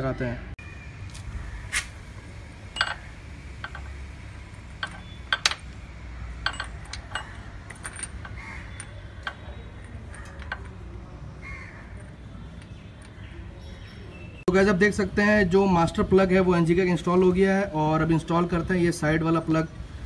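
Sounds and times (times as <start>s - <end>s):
crows cawing: 8.3s - 9.0s, 11.4s - 12.0s.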